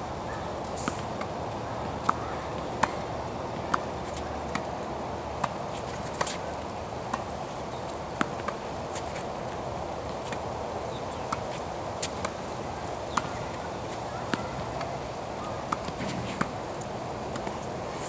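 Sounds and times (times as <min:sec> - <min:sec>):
steady background noise: 0:00.0 - 0:18.0
tennis balls hit by rackets: 0:00.7 - 0:09.4, 0:13.1 - 0:17.7.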